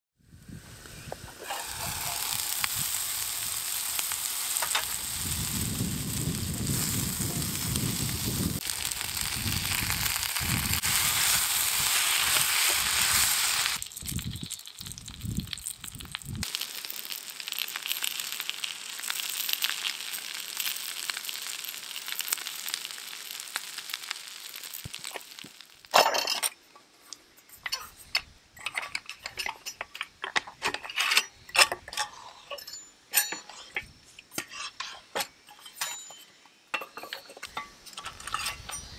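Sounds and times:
food sizzling in a pan: 0:00.3 - 0:25.9.

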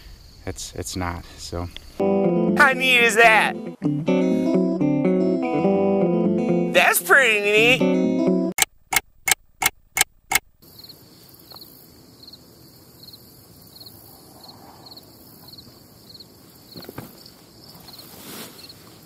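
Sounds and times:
crickets chirping: 0:00.0 - 0:02.1, 0:10.6 - 0:19.0.

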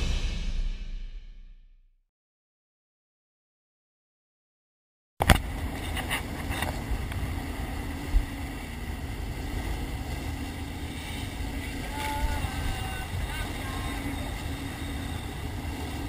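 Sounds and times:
wake rushing past: 0:00.0 - 0:01.6
loud thump: 0:00.0 - 0:01.9
boat engine running: 0:05.3 - 0:16.0
wind buffeting microphone: 0:05.4 - 0:16.0.

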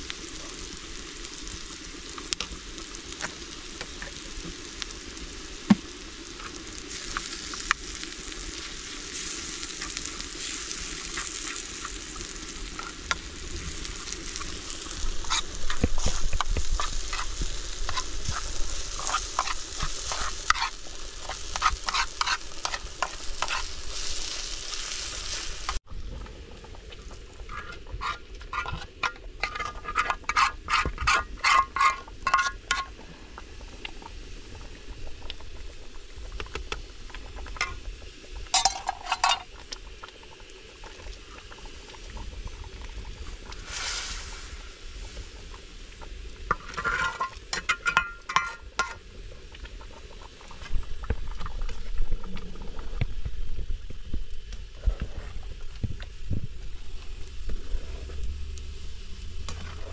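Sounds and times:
food sizzling in a pan: 0:00.0 - 0:25.9, 0:26.7 - 0:59.9
spoon scraping a pan: 0:14.3 - 0:24.3, 0:27.5 - 0:33.0, 0:38.6 - 0:39.5, 0:46.5 - 0:49.0.

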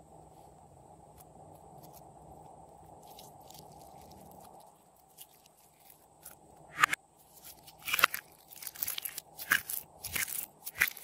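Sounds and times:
slime crackling and popping: 0:07.6 - 0:11.0.

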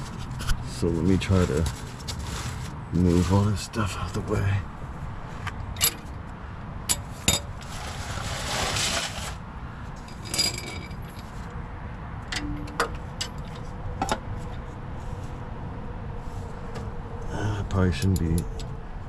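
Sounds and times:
metal tools clinking and clattering: 0:05.8 - 0:06.1, 0:10.0 - 0:11.4, 0:12.3 - 0:14.2.

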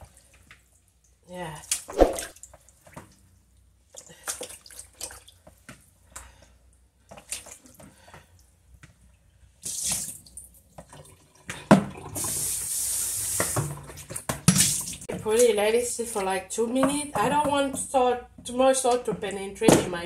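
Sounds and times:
splashing water in basin: 0:01.7 - 0:03.0, 0:13.4 - 0:15.1
water pouring: 0:09.7 - 0:15.1.

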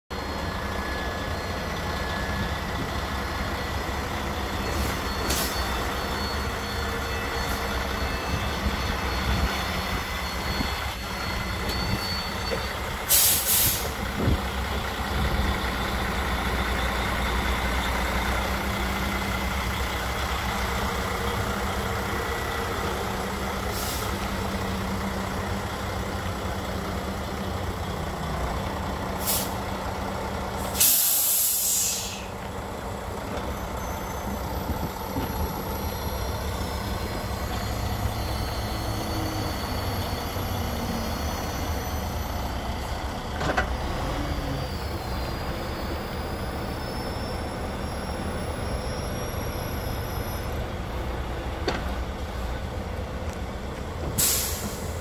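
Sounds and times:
truck diesel engine running: 0:00.1 - 0:55.0
air brake hisses: 0:13.1 - 0:14.0, 0:23.7 - 0:24.3, 0:29.2 - 0:29.6, 0:30.6 - 0:32.4, 0:54.2 - 0:55.0.

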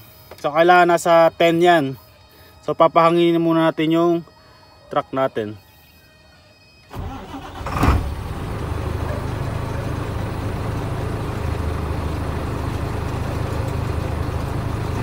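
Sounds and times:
diesel engine idling: 0:06.9 - 0:15.0
diesel truck engine starting: 0:06.9 - 0:15.0.

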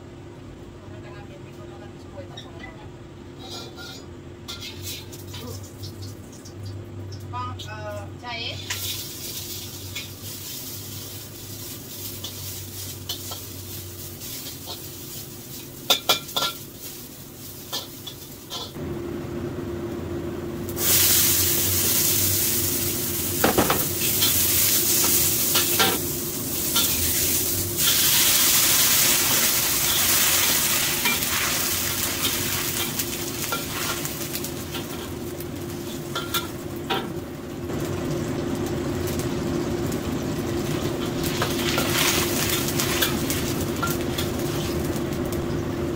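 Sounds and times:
vegetables sizzling in a wok: 0:03.2 - 0:45.9
metal spatula scraping a wok: 0:03.4 - 0:05.2.

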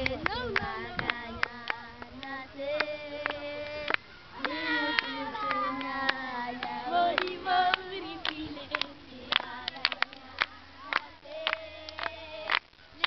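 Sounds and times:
children singing: 0:00.0 - 0:12.6
sharp hand claps: 0:00.0 - 0:12.7.

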